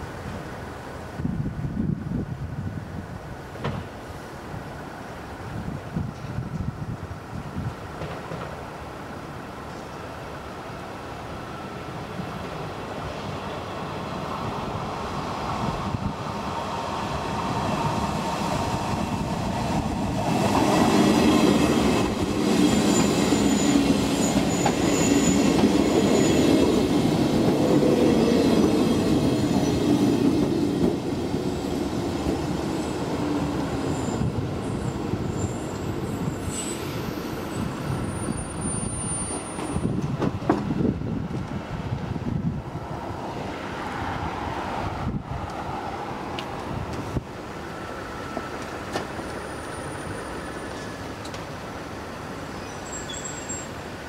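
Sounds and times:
electric train passing: 0:10.2 - 0:54.0
high wheel squeal: 0:22.5 - 0:26.9, 0:33.8 - 0:39.9, 0:52.5 - 0:53.8.

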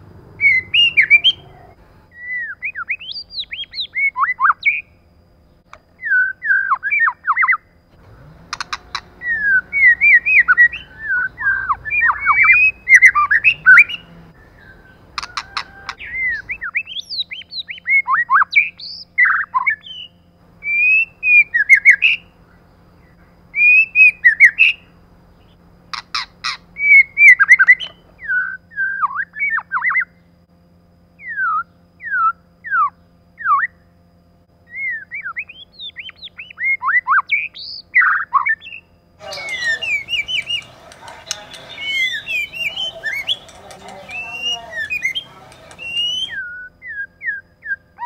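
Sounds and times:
chatter of overlapping bird calls: 0:00.0 - 0:04.9, 0:06.1 - 0:30.2, 0:34.8 - 0:48.0
bird singing whistles: 0:00.4 - 0:01.5, 0:02.1 - 0:04.9, 0:06.0 - 0:07.6, 0:08.6 - 0:22.3, 0:23.0 - 0:25.6, 0:26.2 - 0:30.2, 0:31.2 - 0:33.8, 0:34.6 - 0:48.0
harsh clicking bird notes: 0:08.0 - 0:20.0, 0:25.9 - 0:28.3, 0:39.2 - 0:46.4.

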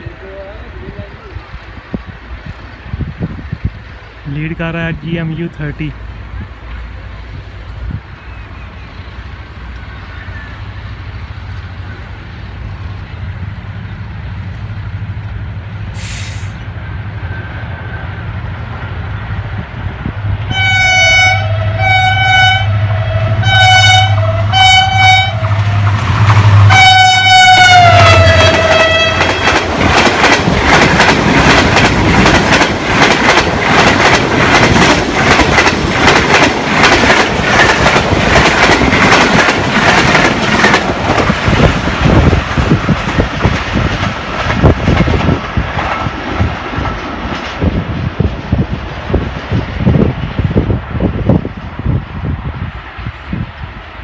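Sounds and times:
diesel locomotive engine rumble: 0:00.0 - 0:54.0
train horn blasts: 0:20.5 - 0:25.8, 0:26.4 - 0:29.5
wheels clacking over rail joints: 0:28.1 - 0:47.8.

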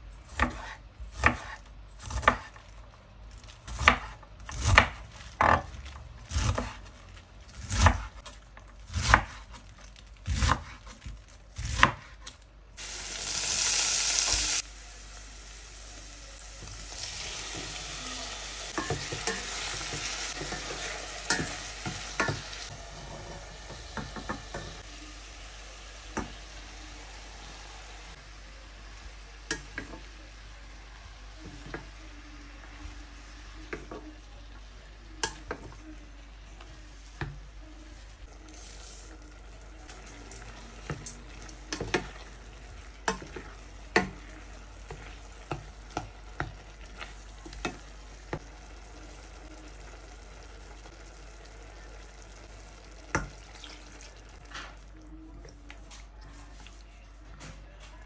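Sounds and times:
vegetables sizzling in oil: 0:12.8 - 0:35.7, 0:38.3 - 0:54.5.

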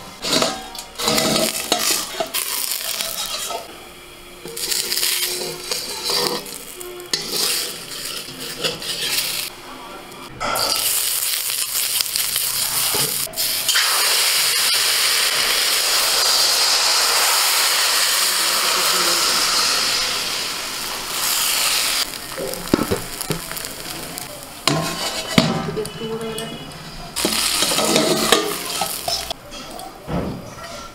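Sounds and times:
batter sizzling in hot pan: 0:00.0 - 0:03.7, 0:04.4 - 0:09.5, 0:10.6 - 0:26.1, 0:27.2 - 0:29.4
metal bowl clanking on pan: 0:00.2 - 0:03.7, 0:04.4 - 0:09.5, 0:24.6 - 0:26.6, 0:27.2 - 0:30.2
brush scraping pan: 0:04.6 - 0:09.5.

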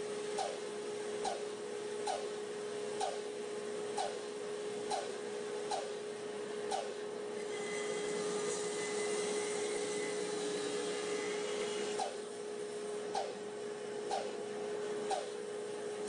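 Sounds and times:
bandsaw cutting wood: 0:07.4 - 0:12.2.

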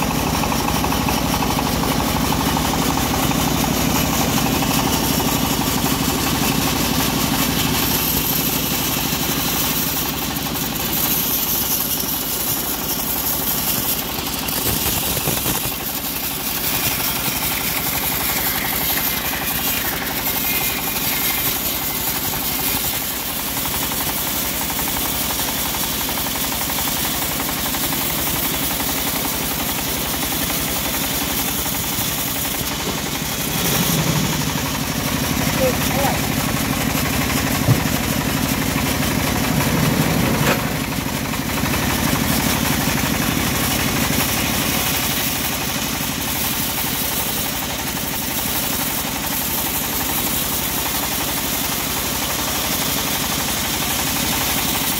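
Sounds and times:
sawmill machine hum: 0:00.0 - 0:54.9
band blade cutting log hiss: 0:11.0 - 0:23.2.

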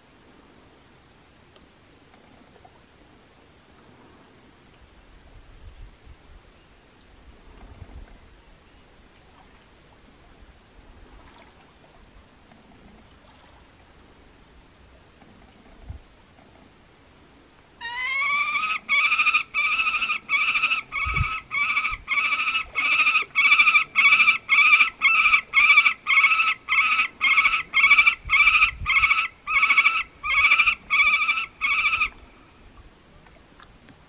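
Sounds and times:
falcon harsh repeated calls: 0:17.8 - 0:32.2.

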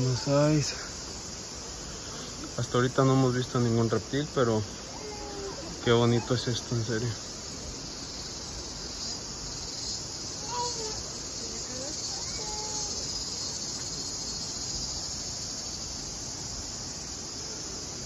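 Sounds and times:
insects chorus: 0:00.0 - 0:18.0.

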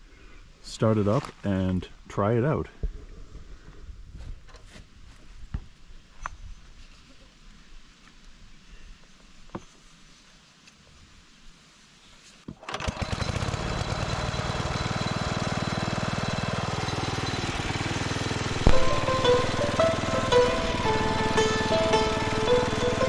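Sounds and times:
small engine running: 0:12.6 - 0:23.0
music: 0:18.6 - 0:23.0.

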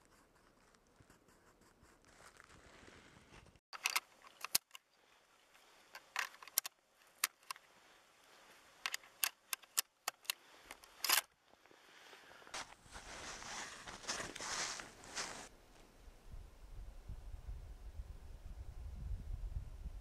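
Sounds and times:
metallic clicks of cartridge handling: 0:03.8 - 0:04.8, 0:05.9 - 0:07.6, 0:08.8 - 0:11.3.

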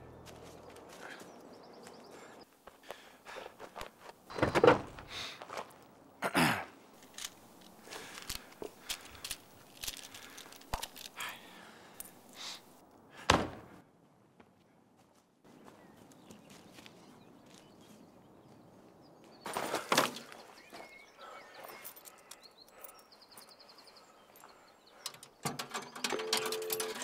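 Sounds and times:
clicks and rustling rummaging: 0:07.0 - 0:11.3, 0:25.1 - 0:27.0.

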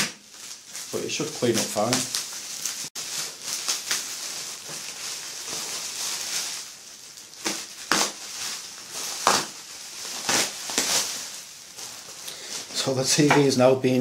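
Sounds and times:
bubble wrap crinkling: 0:00.0 - 0:13.3.

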